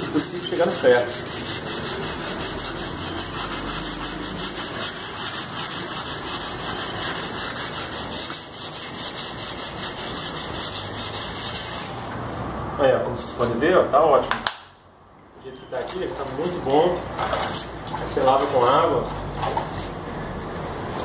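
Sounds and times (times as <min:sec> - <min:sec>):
sandpaper scrubbing on metal: 0:00.0 - 0:12.0.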